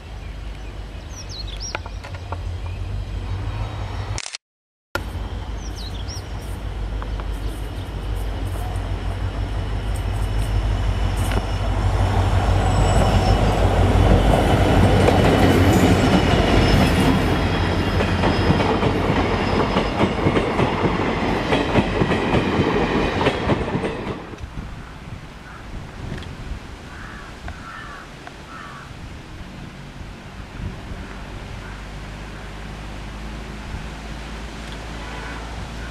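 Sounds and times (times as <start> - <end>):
diesel locomotive engine rumble: 5.0 - 26.3, 29.0 - 35.9
train wheels clacking on rail joints: 13.0 - 24.5.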